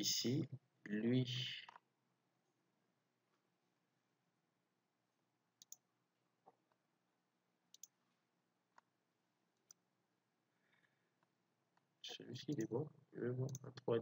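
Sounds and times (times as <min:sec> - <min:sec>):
computer mouse clicks: 0:05.6 - 0:05.8, 0:07.7 - 0:08.0, 0:12.4 - 0:12.7.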